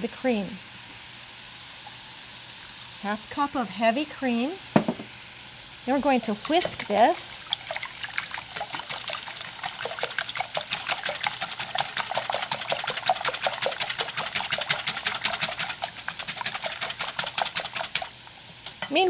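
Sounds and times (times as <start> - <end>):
whisk beating in a bowl: 6.1 - 18.2.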